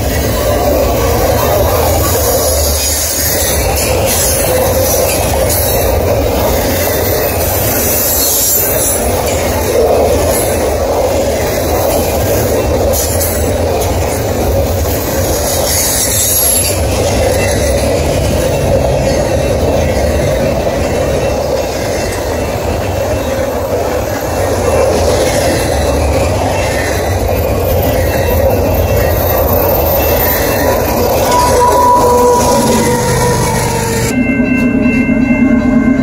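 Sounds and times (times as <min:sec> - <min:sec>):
train wheels rolling on rails: 0:00.0 - 0:36.0.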